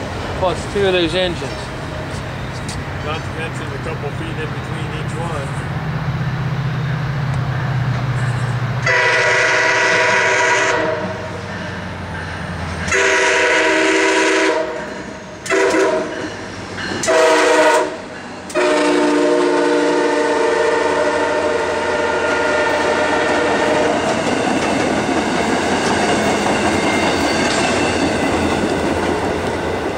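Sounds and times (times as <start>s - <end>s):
wheels rushing on rail: 0.0s - 29.9s
train air horn blasts: 8.8s - 11.8s, 12.8s - 16.3s, 17.0s - 24.0s.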